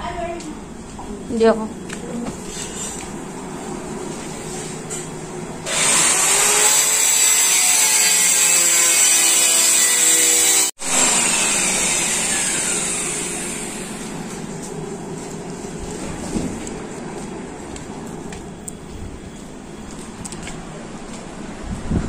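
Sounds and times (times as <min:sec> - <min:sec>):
power cutter cutting: 0:05.6 - 0:14.2.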